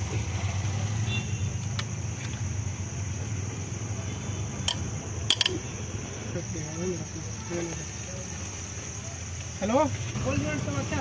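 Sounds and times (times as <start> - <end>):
socket wrench clicking: 4.7 - 5.6.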